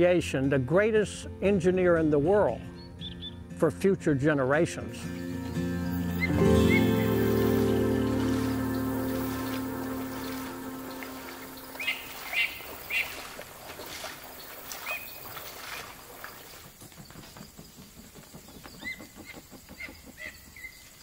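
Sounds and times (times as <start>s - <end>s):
insects buzzing: 5.2s - 21.0s.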